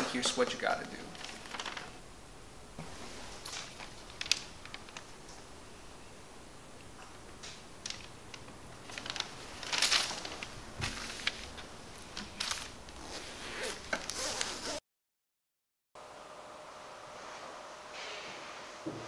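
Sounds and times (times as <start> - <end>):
paper rustling: 1.1 - 2.0, 2.8 - 5.3, 7.5 - 14.6.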